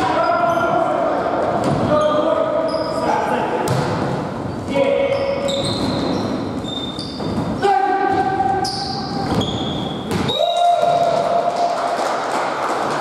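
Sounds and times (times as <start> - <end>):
sneakers squeaking on court floor: 0.1 - 10.4.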